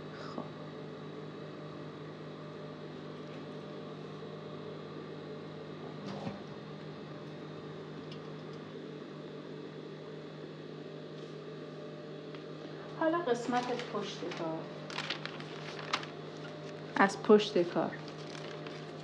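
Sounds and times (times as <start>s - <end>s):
low electrical hum: 0.0s - 19.0s
fabric handling noise: 13.5s - 16.9s, 18.1s - 19.0s.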